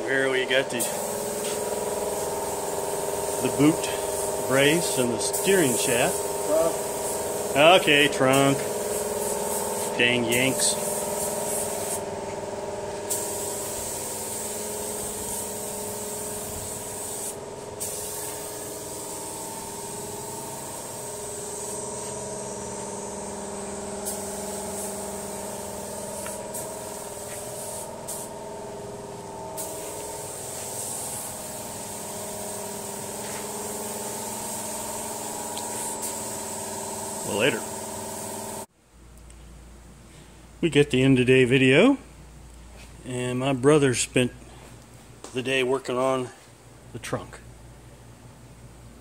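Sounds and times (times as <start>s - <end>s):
air compressor humming: 0.1s - 38.7s
spray gun hissing: 0.8s - 38.7s.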